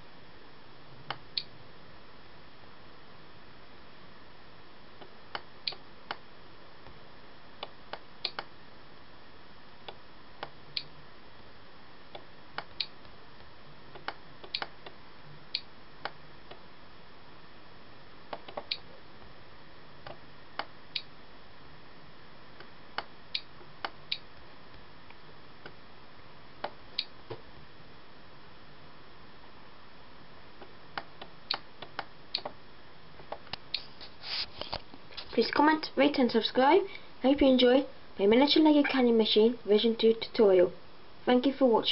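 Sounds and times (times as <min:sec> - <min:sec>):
steady background hiss: 0:00.0 - 0:41.9
computer mouse clicking: 0:07.6 - 0:08.5, 0:14.0 - 0:15.0, 0:18.3 - 0:18.8.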